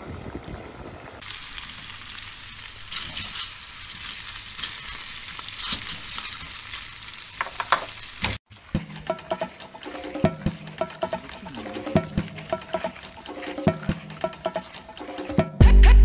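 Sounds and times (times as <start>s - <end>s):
food sizzling in a frying pan: 1.2s - 12.0s.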